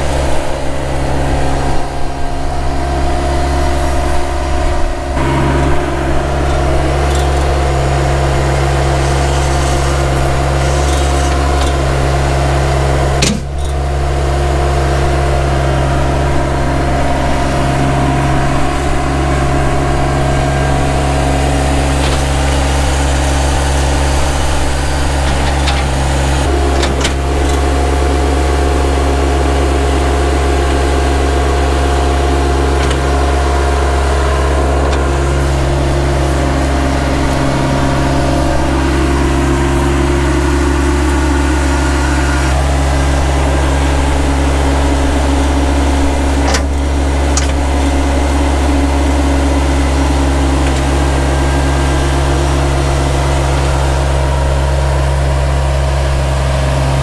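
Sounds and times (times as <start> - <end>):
tractor engine running steadily: 0.0 - 57.0.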